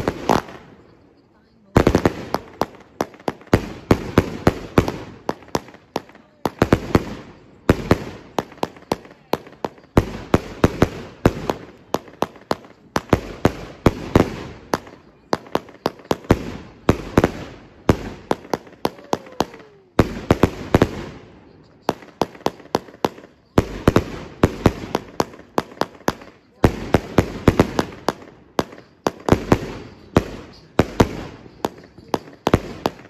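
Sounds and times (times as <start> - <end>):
fireworks bangs: 0.0 - 33.0.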